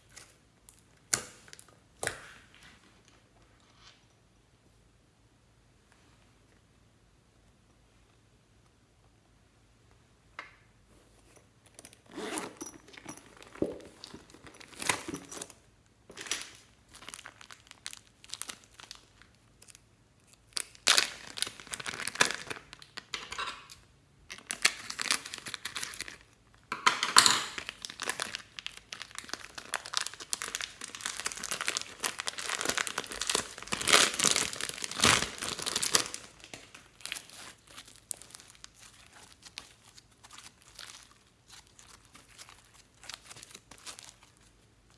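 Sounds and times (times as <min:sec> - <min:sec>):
plastic bag crinkling: 0:12.4 - 0:19.8, 0:20.5 - 0:23.1, 0:27.5 - 0:44.9.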